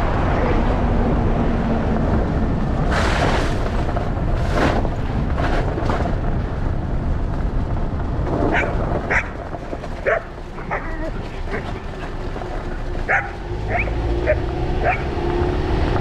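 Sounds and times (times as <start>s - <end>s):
low rumble: 0.0s - 16.0s
dog barking: 8.5s - 9.4s, 10.0s - 11.7s, 13.1s - 15.1s
dog yipping: 8.5s - 9.4s, 10.0s - 11.6s, 13.1s - 15.1s.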